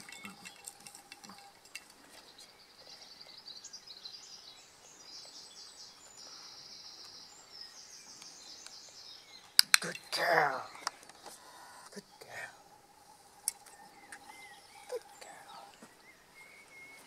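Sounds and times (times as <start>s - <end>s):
songbird trilling: 0.0s - 17.0s
faint small clicks: 13.4s - 14.2s.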